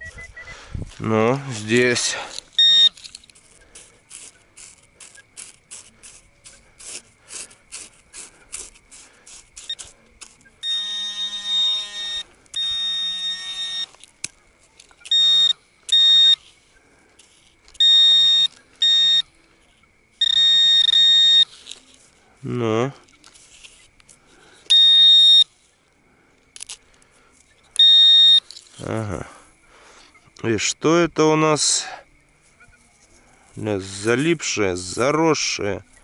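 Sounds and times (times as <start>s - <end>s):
metal detector beeping: 0.0s - 0.6s, 1.5s - 14.1s, 14.7s - 16.6s, 17.2s - 19.4s, 20.2s - 22.0s, 24.6s - 25.7s, 27.4s - 28.9s
metal detector ticking: 1.1s - 19.4s, 20.2s - 22.2s, 23.0s - 25.7s, 26.4s - 29.0s.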